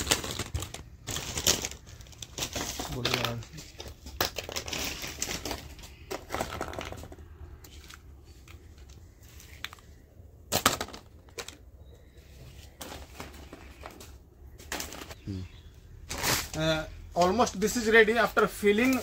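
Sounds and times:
plastic packaging crinkling: 0.0 - 10.0, 16.1 - 17.8
hollow plastic toys clattering: 0.0 - 15.2, 16.1 - 19.0.

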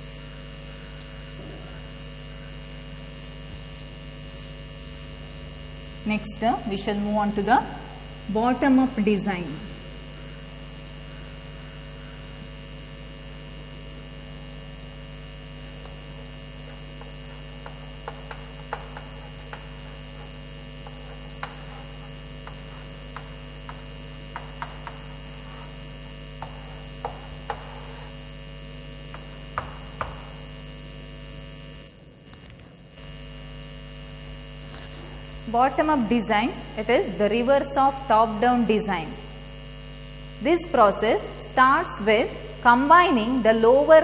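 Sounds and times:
electrical mains hum: 0.0 - 44.0
chalk tapping on blackboard: 17.0 - 25.1, 26.4 - 28.0, 29.1 - 30.3.

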